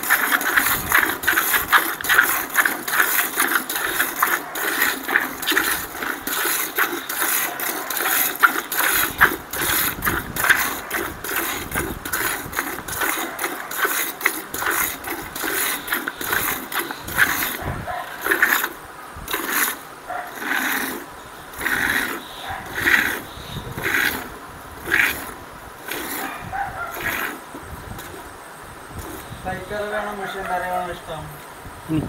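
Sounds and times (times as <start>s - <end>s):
milk squirting into pail: 0.0s - 28.3s, 29.0s - 29.4s.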